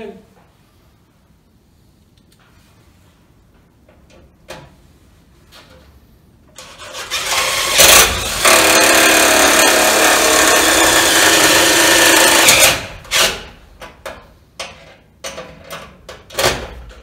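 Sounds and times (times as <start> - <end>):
cordless drill on sheet metal: 6.6 - 13.6.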